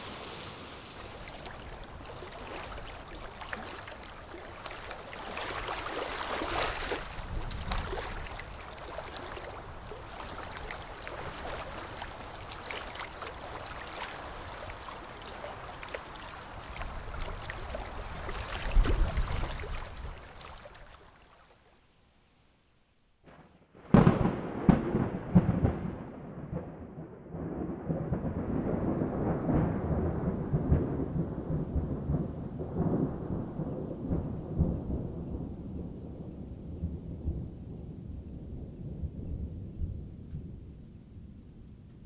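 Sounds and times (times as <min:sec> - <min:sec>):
rolling thunder rumble: 0:23.3 - 0:41.9
sharp thunderclap: 0:23.8 - 0:35.5.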